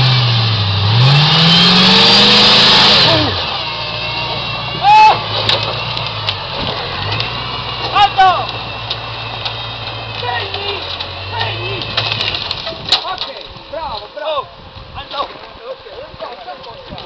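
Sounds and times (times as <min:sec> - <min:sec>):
buggy engine revving: 0:00.0 - 0:13.8
loud shout: 0:04.8 - 0:05.3.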